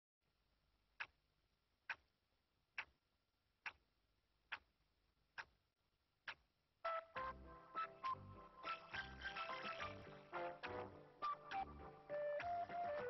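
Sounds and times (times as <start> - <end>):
music: 6.8 - 13.0.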